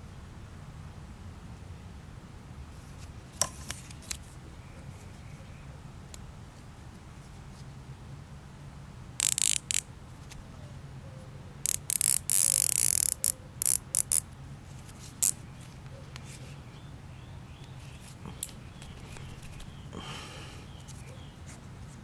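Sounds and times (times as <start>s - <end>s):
zip tie ratcheting: 9.2s - 9.9s, 11.6s - 14.3s, 15.2s - 15.4s.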